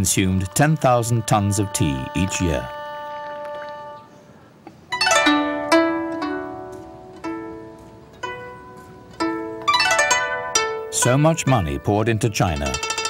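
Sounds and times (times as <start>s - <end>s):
plucked zither music: 4.9s - 13.0s.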